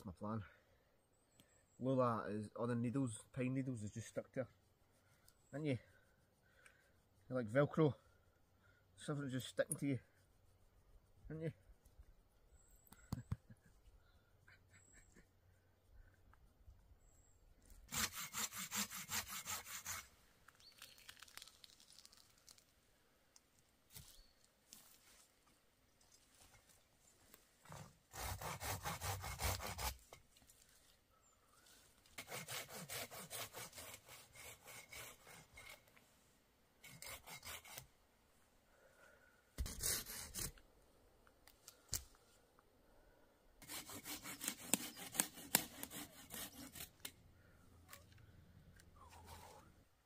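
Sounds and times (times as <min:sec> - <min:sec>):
hand saw cutting wood: 0:17.9 - 0:20.1, 0:27.7 - 0:30.2, 0:32.1 - 0:35.9, 0:36.8 - 0:37.9, 0:39.6 - 0:40.6, 0:43.6 - 0:47.2.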